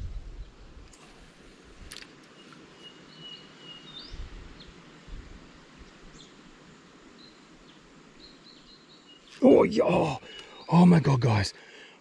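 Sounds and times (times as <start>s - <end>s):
birds calling: 2.1s - 5.0s, 5.6s - 12.0s.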